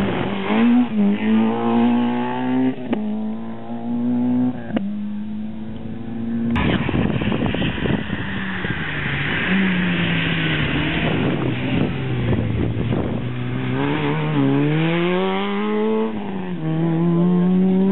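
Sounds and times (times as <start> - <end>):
rally car engine revving past: 0.0 - 4.8, 6.0 - 17.9.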